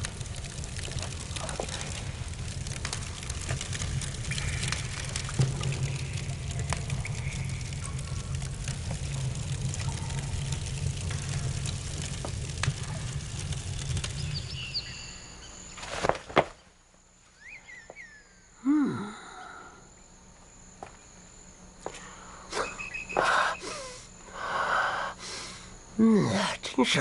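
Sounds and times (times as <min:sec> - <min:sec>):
low steady rumble: 0:00.0 - 0:15.8.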